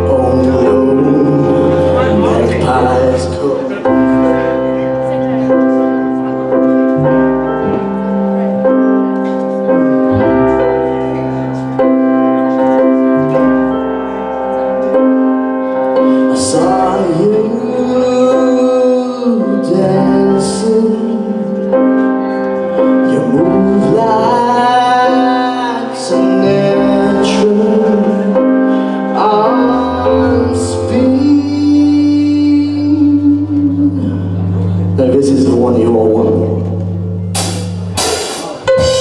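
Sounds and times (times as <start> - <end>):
bass guitar: 0.0 - 15.4, 29.3 - 39.0
stage piano chords: 0.0 - 39.0
cymbal crashes: 37.3 - 39.0.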